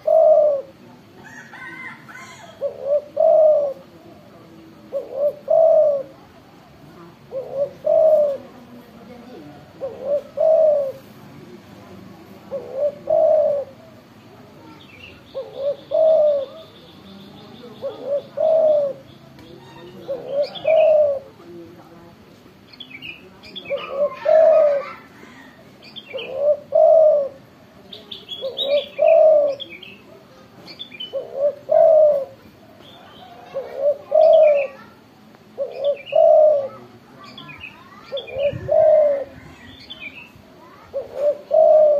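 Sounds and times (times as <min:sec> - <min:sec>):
dove cooing: 0:00.0 - 0:06.4, 0:07.1 - 0:11.2, 0:12.4 - 0:16.8, 0:17.6 - 0:21.6, 0:23.4 - 0:30.4, 0:31.0 - 0:34.9, 0:35.5 - 0:37.0, 0:37.9 - 0:41.9
small birds chirping: 0:12.4 - 0:21.6, 0:22.6 - 0:41.9.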